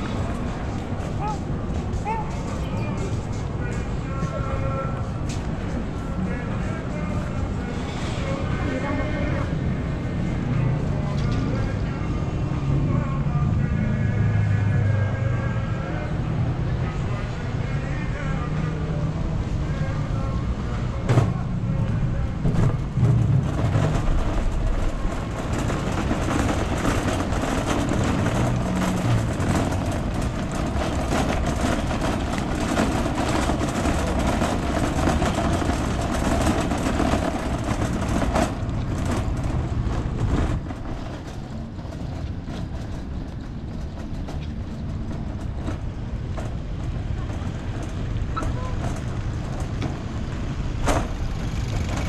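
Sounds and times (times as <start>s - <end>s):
shopping trolley rattling over tiles: 19.6s - 52.0s.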